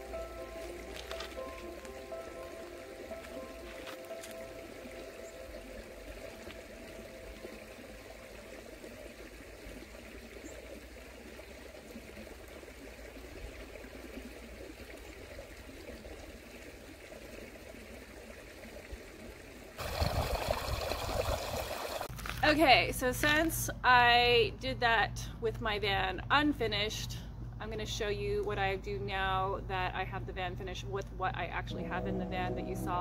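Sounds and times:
faint outdoor hiss: 0:00.0 - 0:11.3
water trickling and flowing: 0:00.0 - 0:22.1.

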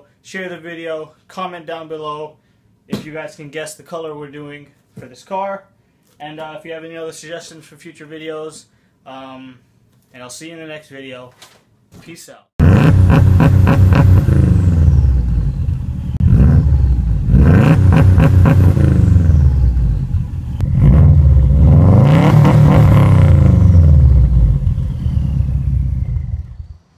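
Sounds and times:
car engine revving: 0:12.6 - 0:26.9.

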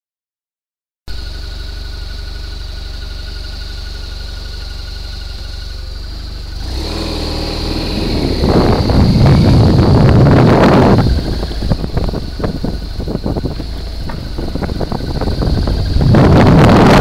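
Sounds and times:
motorcycle engine idling and revving: 0:01.1 - 0:17.0
wind on microphone: 0:07.0 - 0:17.0.

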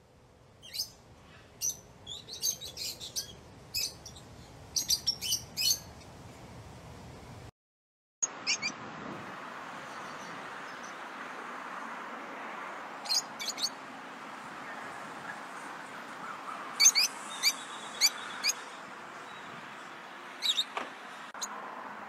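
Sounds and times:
lovebirds chirping: 0:00.6 - 0:06.4, 0:08.2 - 0:08.8, 0:13.0 - 0:13.8, 0:14.5 - 0:21.5.

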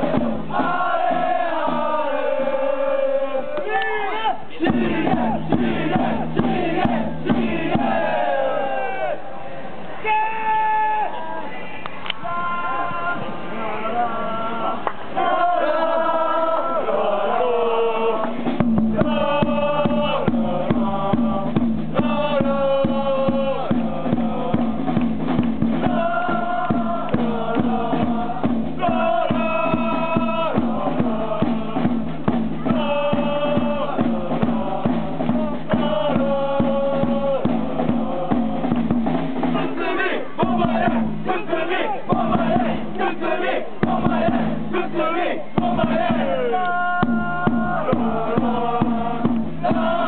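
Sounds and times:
steady drumbeat: 0:00.0 - 0:02.6, 0:04.6 - 0:08.4, 0:18.2 - 0:50.0
crowd chanting in unison: 0:00.0 - 0:10.1, 0:11.1 - 0:50.0.

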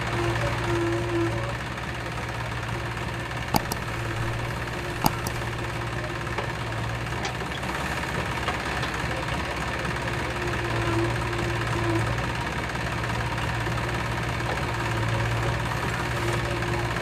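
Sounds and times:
diesel engine running: 0:01.5 - 0:08.3
sharp knocks: 0:03.6 - 0:05.8.

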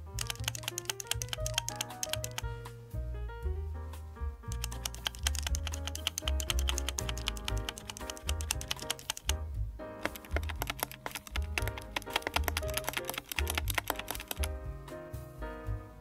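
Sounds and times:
keyboard key clacking: 0:00.2 - 0:02.5, 0:04.5 - 0:09.4, 0:10.0 - 0:14.5
background music with bass line: 0:01.2 - 0:16.0.

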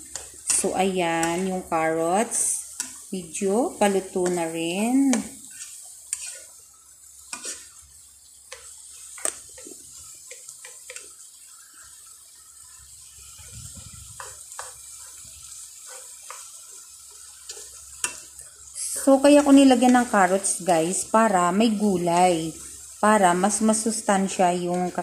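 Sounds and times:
spoon knocking and scraping pan: 0:00.0 - 0:01.6, 0:03.8 - 0:06.6, 0:07.2 - 0:07.8, 0:08.5 - 0:11.2, 0:13.4 - 0:18.4
faint wet simmer: 0:00.0 - 0:25.0.

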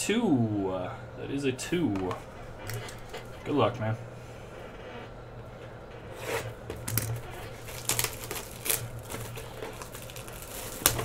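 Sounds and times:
steady low hum: 0:00.0 - 0:11.0
shrink wrap crinkling: 0:06.1 - 0:11.0.

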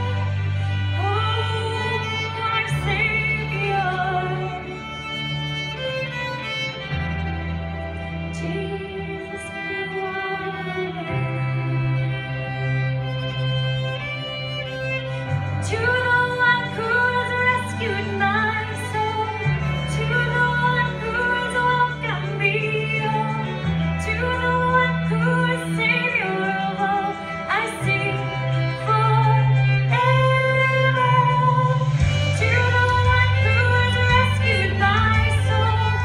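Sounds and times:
woman singing into microphone: 0:00.0 - 0:06.2, 0:08.3 - 0:12.8, 0:15.4 - 0:36.0
fiddle playing: 0:00.0 - 0:36.0.

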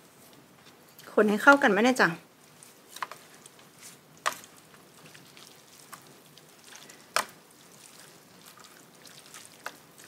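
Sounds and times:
liquid sloshing in a bowl: 0:02.5 - 0:10.0.

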